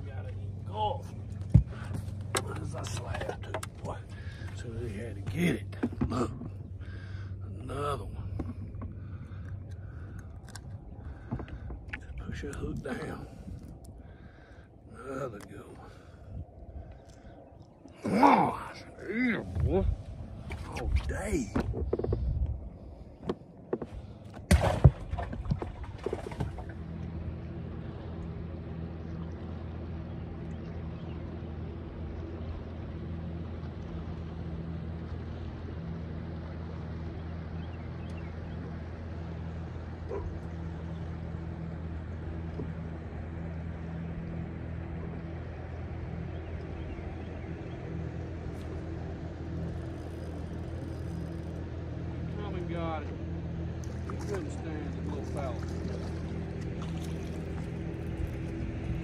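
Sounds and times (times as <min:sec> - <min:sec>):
boat motor humming: 0:00.0 - 0:59.0
knocks and thumps on boat: 0:01.4 - 0:04.6, 0:05.2 - 0:06.7, 0:08.2 - 0:09.0, 0:11.1 - 0:12.3, 0:20.4 - 0:22.6, 0:23.2 - 0:26.8.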